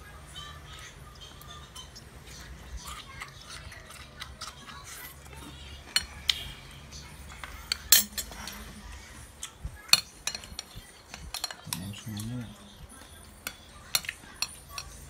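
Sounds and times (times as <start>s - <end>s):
spoon clinking on china plate: 7.7s - 8.6s.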